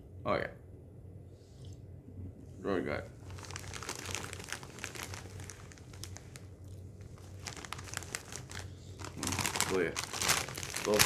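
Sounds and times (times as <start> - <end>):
plastic snack bag crinkling: 3.2 - 11.0.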